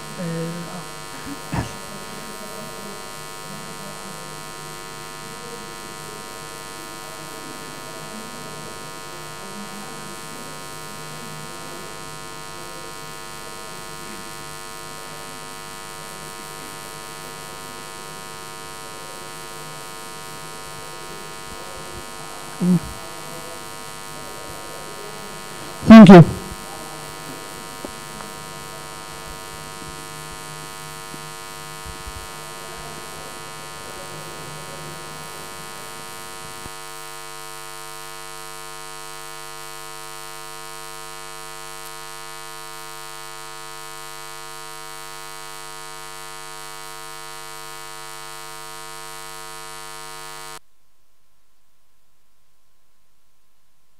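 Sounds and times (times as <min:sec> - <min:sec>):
faint room noise: 0:00.0 - 0:13.0, 0:18.9 - 0:36.8
steady electrical buzz: 0:00.0 - 0:50.6.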